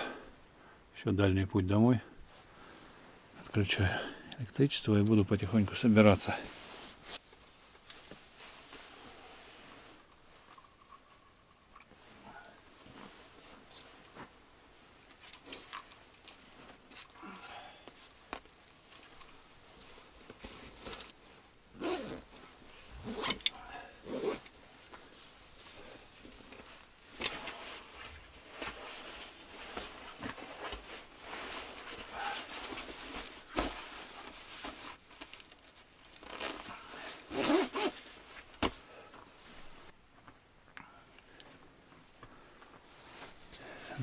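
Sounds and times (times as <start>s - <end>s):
padded jacket rustling: 6.4s - 10.1s, 12.7s - 39.9s
zipper being pulled: 21.8s - 22.4s, 23.0s - 24.5s, 36.2s - 38.1s.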